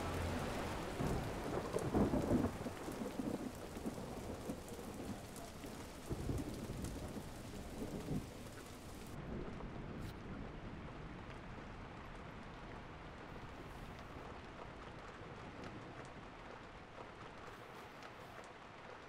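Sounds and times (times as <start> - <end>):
thunder rumbling: 0.0 - 12.2
steady rain falling: 0.0 - 19.0.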